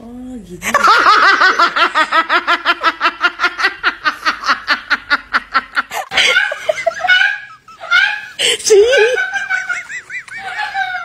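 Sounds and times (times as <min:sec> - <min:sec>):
person laughing high-pitched: 0:06.0 - 0:11.0.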